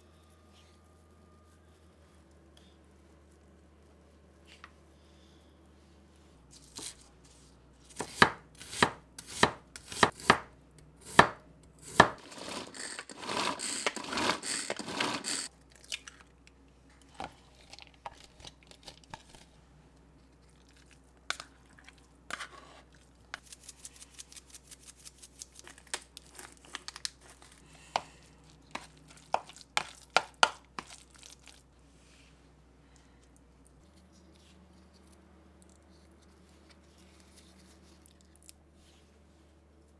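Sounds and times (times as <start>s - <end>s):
knife chopping on cutting board: 8.0s - 12.2s
chopped vegetables rustling: 11.9s - 15.5s.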